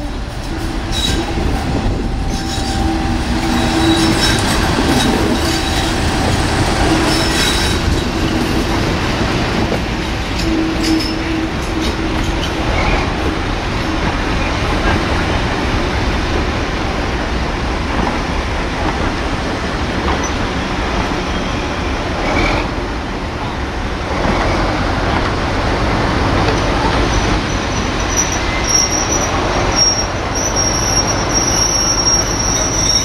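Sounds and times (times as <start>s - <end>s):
train wheels rumbling on rails: 0.0s - 33.0s
high-pitched wheel squeal: 0.9s - 6.0s, 27.0s - 33.0s.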